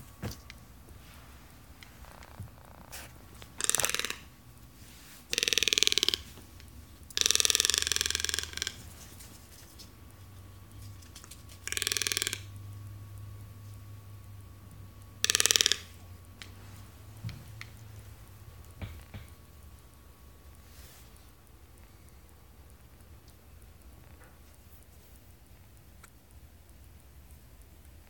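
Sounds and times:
toucan rasping croaks: 1.8s - 9.1s, 11.5s - 12.6s, 15.2s - 16.9s.

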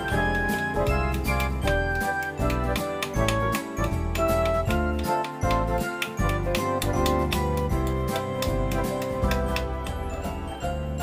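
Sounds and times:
instrumental music with steady beat: 0.0s - 11.0s.

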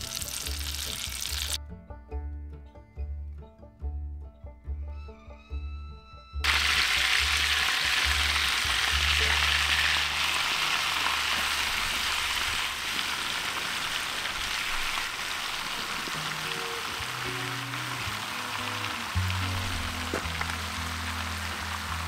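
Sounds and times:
butter sizzling in frying pan: 0.0s - 1.6s, 6.4s - 22.0s
background music with low bass: 0.0s - 10.3s, 16.2s - 22.0s.

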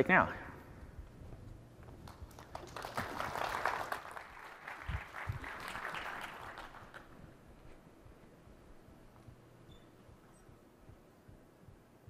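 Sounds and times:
low thumps: 0.0s - 2.4s, 7.1s - 12.0s
audience applauding: 2.0s - 7.4s.

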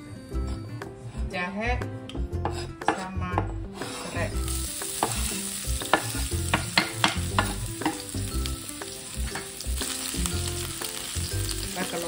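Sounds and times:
ginger sizzling in oil: 3.8s - 12.0s.

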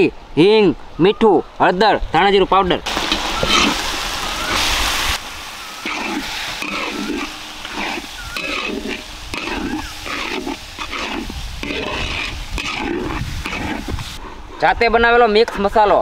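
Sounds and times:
paste sizzling in oil: 2.9s - 14.2s
metal spatula scraping a pan: 3.1s - 3.8s, 5.8s - 14.2s.

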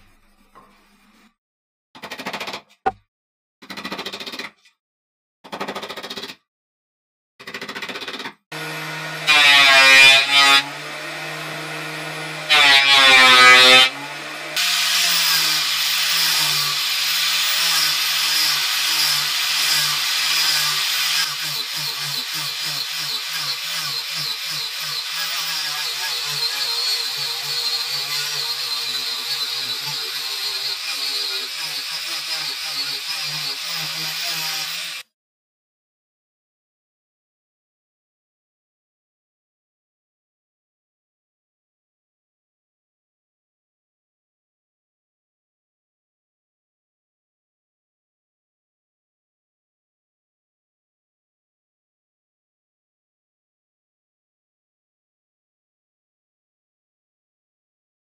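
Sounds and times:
angle grinder sanding wood: 8.6s - 35.0s.

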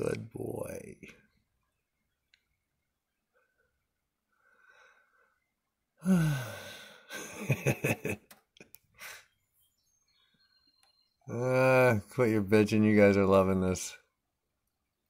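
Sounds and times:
loud sighing exhale: 6.0s - 7.1s
short breathy huffs: 8.9s - 9.4s.

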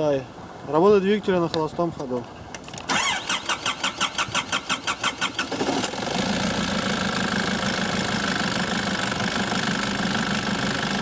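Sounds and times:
diesel engine cranking: 2.6s - 9.2s
diesel engine idling: 5.9s - 11.0s.

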